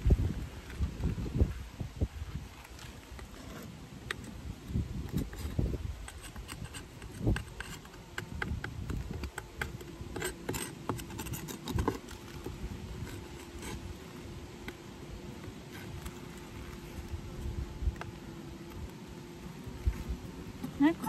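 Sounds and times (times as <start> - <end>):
bees buzzing: 6.0 - 21.0.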